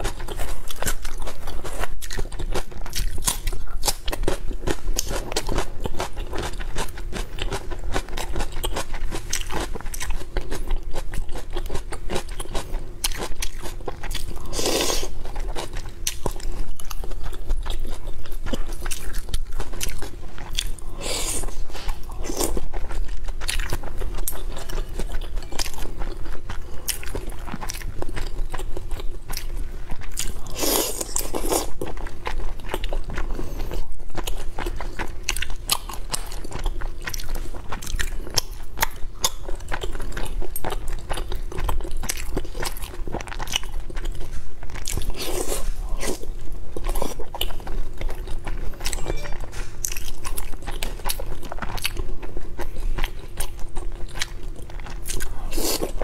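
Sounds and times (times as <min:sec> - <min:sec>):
crunchy chewing and biting: 0:00.0 - 0:56.0.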